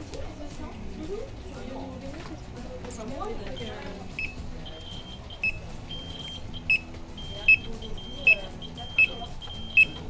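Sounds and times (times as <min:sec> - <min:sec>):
two-tone electronic alarm beeping: 0:03.6 - 0:10.0.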